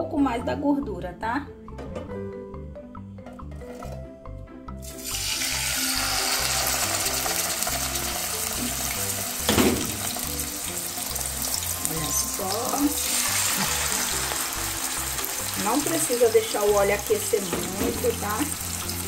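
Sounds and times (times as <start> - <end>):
background music with beat: 1.6 - 16.0
chicken sizzling in hot oil: 4.8 - 19.0.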